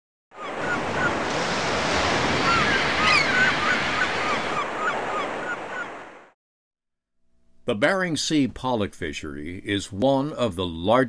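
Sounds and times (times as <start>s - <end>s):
wind: 0.3s - 6.3s
seabirds crying: 0.4s - 6.2s
ocean surf: 0.4s - 6.4s.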